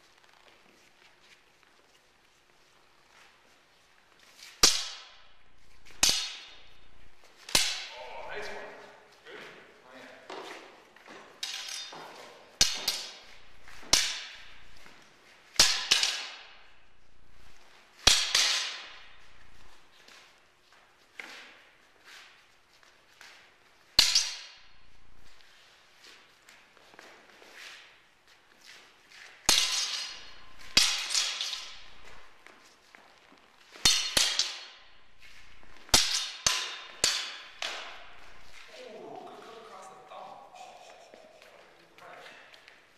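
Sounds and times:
swords clashing with echo: 0:04.5 - 0:08.9, 0:11.4 - 0:15.0, 0:15.6 - 0:17.0, 0:18.0 - 0:20.2, 0:24.0 - 0:25.4, 0:29.4 - 0:32.3, 0:33.7 - 0:38.7.

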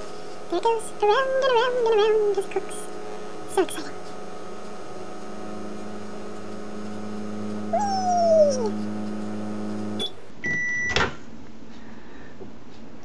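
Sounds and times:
microwave oven humming: 0:00.0 - 0:11.2
cat meowing: 0:07.8 - 0:08.7.

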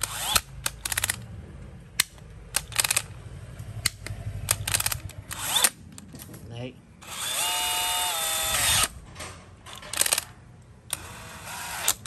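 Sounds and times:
drill chuck ratcheting clicks: 0:00.0 - 0:01.2, 0:02.0 - 0:03.1, 0:09.7 - 0:10.3, 0:10.9 - 0:12.0.

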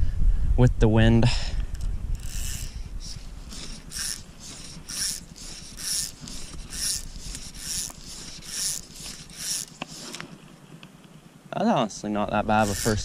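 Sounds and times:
wind rumble on microphone: 0:00.0 - 0:03.6
fly line swishing: 0:02.2 - 0:10.4.

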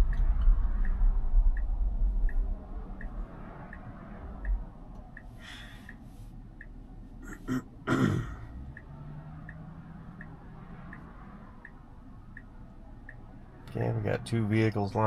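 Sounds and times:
turn signal ticking: 0:00.0 - 0:15.0
person breathing: 0:05.3 - 0:06.4
throat clearing: 0:07.2 - 0:08.5.

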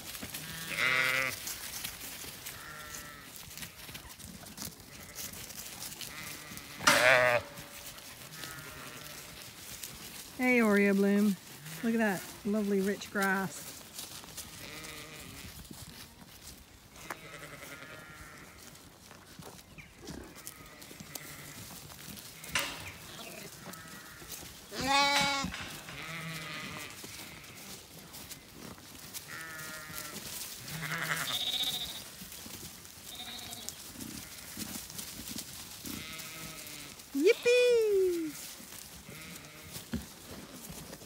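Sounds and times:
sheep bleating: 0:00.4 - 0:01.4, 0:02.5 - 0:03.8, 0:04.9 - 0:05.3, 0:06.0 - 0:07.6, 0:08.3 - 0:09.3, 0:14.4 - 0:15.5, 0:17.0 - 0:18.7, 0:20.2 - 0:21.6, 0:22.4 - 0:27.8, 0:29.3 - 0:32.0, 0:33.1 - 0:34.6, 0:35.8 - 0:38.4, 0:39.0 - 0:39.8.

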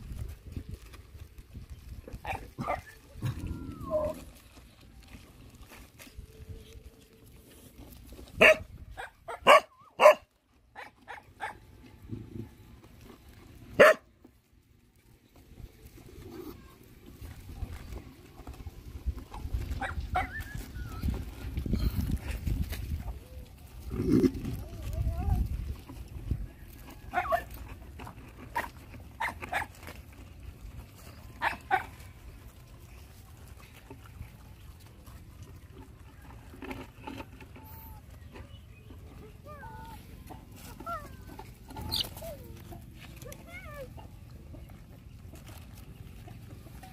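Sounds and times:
low steady rumble: 0:00.0 - 0:09.3
dogs barking: 0:02.2 - 0:03.1, 0:08.4 - 0:11.7, 0:13.8 - 0:14.1, 0:19.7 - 0:20.5, 0:27.1 - 0:27.6, 0:28.5 - 0:29.9, 0:31.4 - 0:32.0
puppies yelping: 0:02.2 - 0:04.6, 0:19.7 - 0:21.4, 0:40.6 - 0:42.8
faint dog yips: 0:02.6 - 0:04.3.

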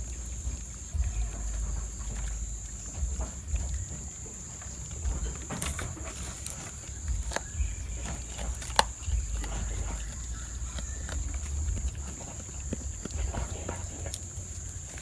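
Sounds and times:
goats chewing: 0:00.0 - 0:15.0
leaves and stems rustling: 0:00.0 - 0:15.0
stems snapping: 0:00.0 - 0:15.0.

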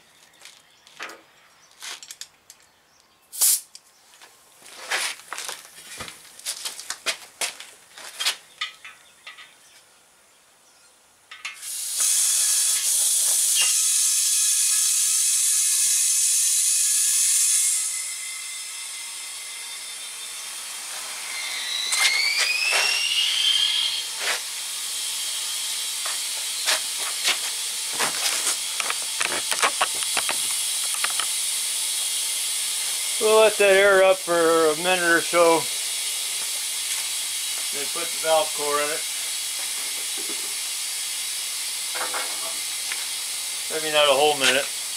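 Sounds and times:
compressed air hissing into tire: 0:03.3 - 0:03.7, 0:11.5 - 0:18.2, 0:20.7 - 0:33.5, 0:34.2 - 0:44.9
short rising squeals: 0:21.2 - 0:24.1.

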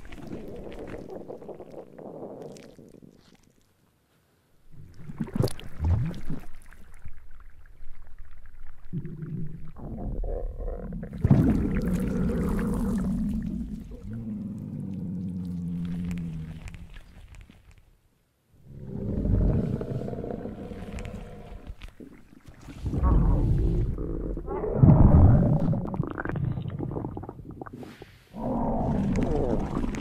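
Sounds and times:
stomach growling: 0:00.0 - 0:03.7, 0:04.7 - 0:18.0, 0:18.6 - 0:30.0
rustling: 0:13.7 - 0:18.0, 0:18.7 - 0:23.7.

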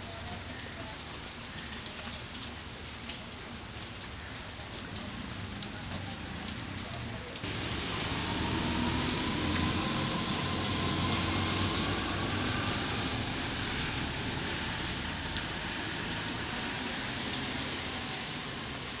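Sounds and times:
street noise: 0:00.0 - 0:19.0
car tyres hissing on wet road: 0:07.4 - 0:19.0.

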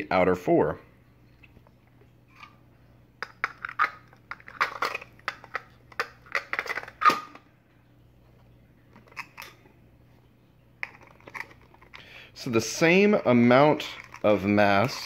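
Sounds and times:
plastic cover clacking: 0:03.2 - 0:07.4, 0:10.8 - 0:12.1, 0:13.8 - 0:15.0.

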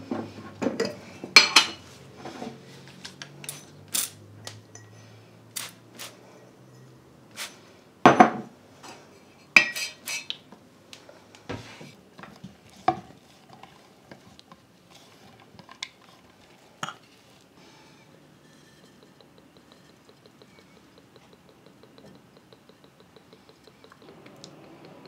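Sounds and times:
glass jar clinking: 0:04.4 - 0:05.0, 0:18.4 - 0:24.1
utensil scraping: 0:12.7 - 0:25.0.

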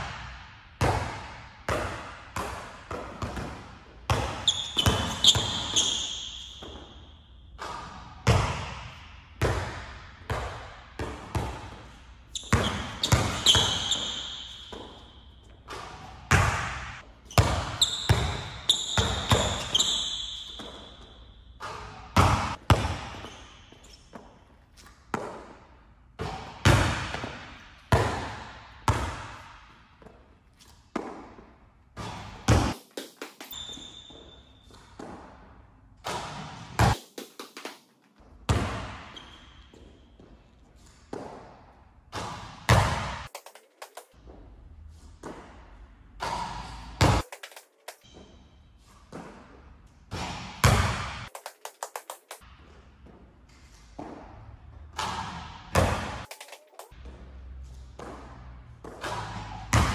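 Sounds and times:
shoes squeaking on court: 0:04.1 - 0:08.1, 0:11.2 - 0:25.5, 0:30.0 - 0:35.4, 0:36.1 - 0:41.5, 0:46.2 - 0:49.6, 0:56.0 - 0:59.8
basketball thudding on gym floor: 0:50.1 - 0:51.2, 0:58.8 - 0:59.9.

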